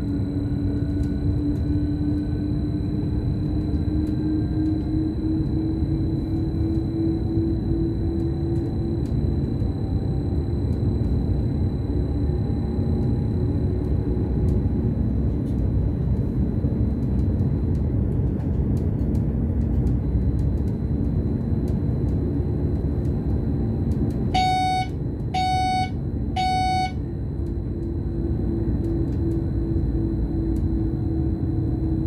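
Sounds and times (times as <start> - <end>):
short electronic beeps: 24.3 - 27.0.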